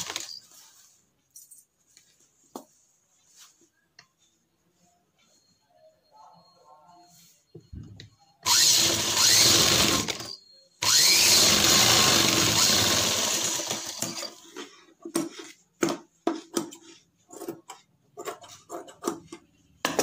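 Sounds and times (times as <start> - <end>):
sewing machine stitching: 0.0 - 0.4, 8.4 - 14.4.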